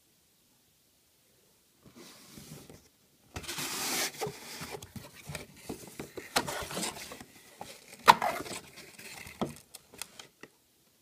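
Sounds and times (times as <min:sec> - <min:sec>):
cardboard flaps rustling: 0:03.4 - 0:09.7.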